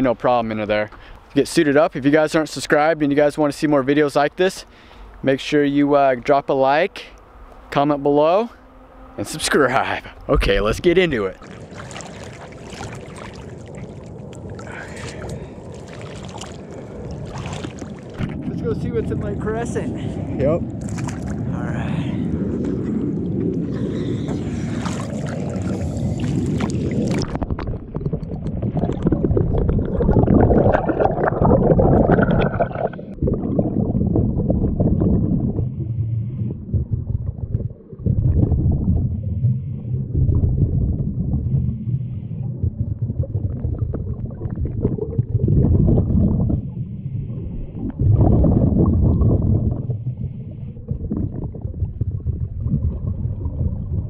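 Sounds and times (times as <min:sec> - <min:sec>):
gurgling bubbles: 0:10.4 - 0:19.4, 0:22.2 - 0:54.0
water splashing: 0:10.4 - 0:20.2, 0:20.8 - 0:21.6, 0:22.5 - 0:39.3
diver breathing underwater: 0:14.4 - 0:17.9, 0:23.6 - 0:27.2.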